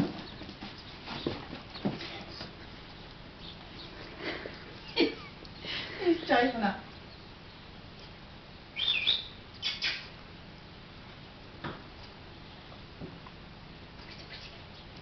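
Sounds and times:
puppy paws on tiled floor: 0.0 - 5.2.

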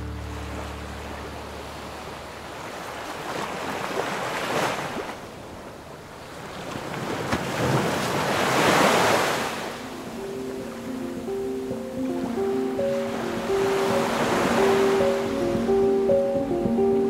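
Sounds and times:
wind: 0.0 - 17.0
surf breaking on beach: 6.4 - 11.1, 12.0 - 16.2.

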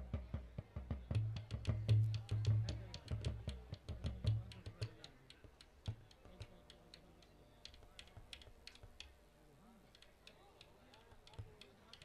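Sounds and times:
low drum thumps: 0.0 - 4.8
faint sharp clicks: 9.9 - 12.0.

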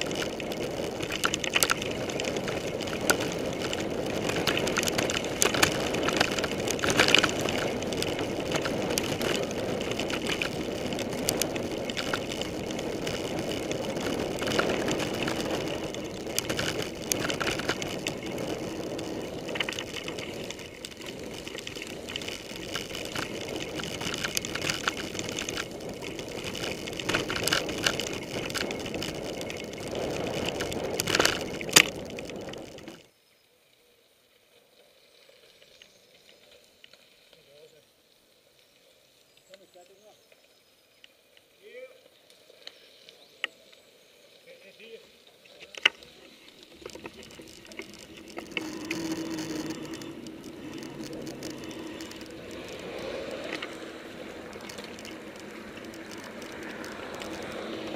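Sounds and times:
bike rattles and knocks: 0.0 - 33.0, 45.6 - 57.9
bike tyre and trail noise: 0.0 - 57.9.

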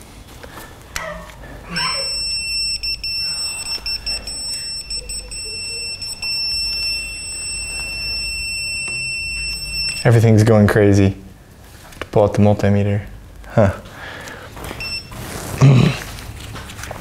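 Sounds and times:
high-pitched alert tone: 1.8 - 10.2.

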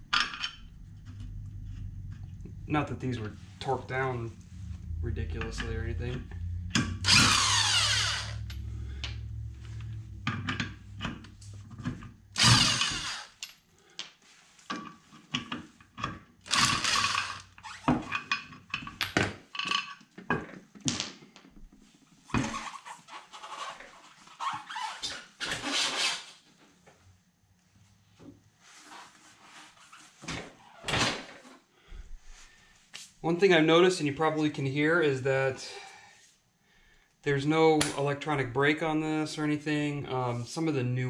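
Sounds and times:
impact wrench whining: 3.8 - 13.5, 16.4 - 18.1.

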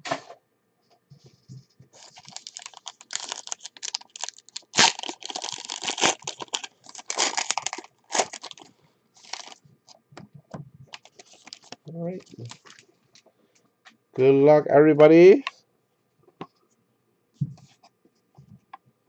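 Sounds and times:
packaging crinkling and tearing: 2.0 - 9.6, 10.9 - 12.8.

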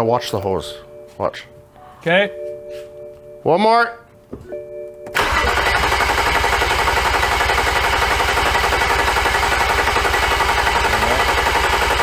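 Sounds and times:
engine cranking on starter: 5.2 - 12.0.

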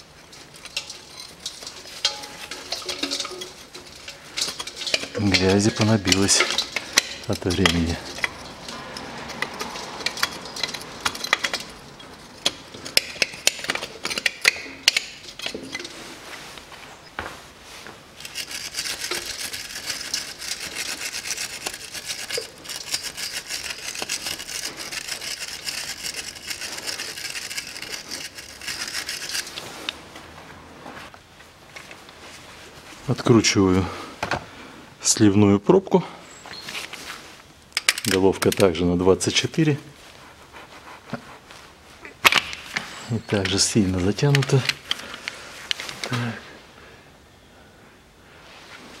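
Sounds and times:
hand tool scraping dirt: 0.0 - 16.3, 18.1 - 30.0
fast back-and-forth scrubbing: 18.3 - 29.6.

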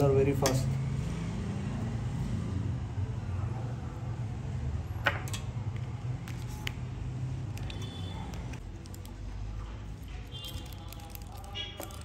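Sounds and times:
plastic packet crinkling: 8.6 - 9.3, 9.9 - 12.0.

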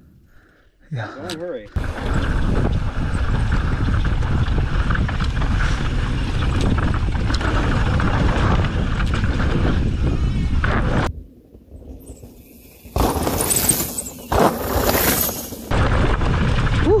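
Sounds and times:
wind rush over microphone: 1.8 - 11.2
tyre rumble: 12.9 - 17.0.

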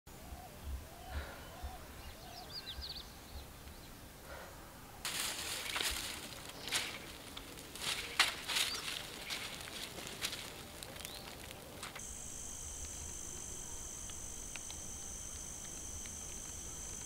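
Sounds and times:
faint bird chirps: 0.1 - 4.0
campfire crackling: 5.1 - 17.0.

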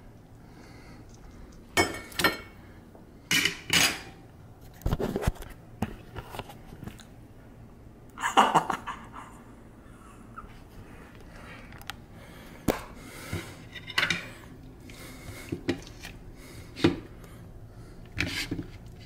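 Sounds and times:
burst of laughter: 8.2 - 9.5.

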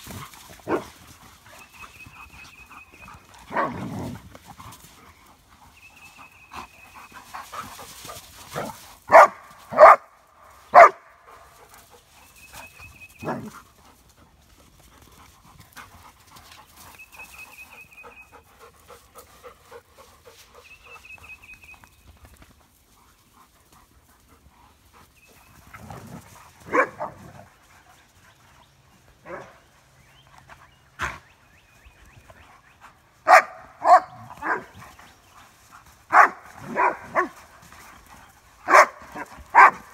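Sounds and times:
dogs panting: 0.0 - 9.7, 10.6 - 39.9
dogs barking: 0.6 - 1.0, 3.5 - 4.0, 8.5 - 11.4, 13.2 - 13.6, 26.6 - 27.4, 33.2 - 34.8, 36.1 - 37.4, 38.6 - 39.9.

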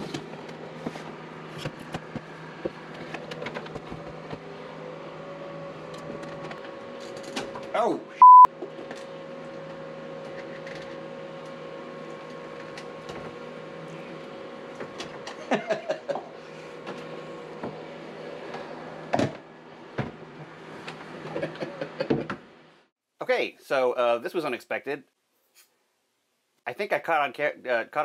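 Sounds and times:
mechanical hum: 0.0 - 22.9
electronic beep: 8.2 - 8.5.

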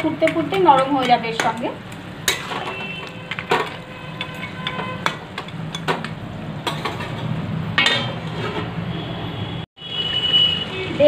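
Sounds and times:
metal lid clanking onto pan: 2.2 - 8.7.

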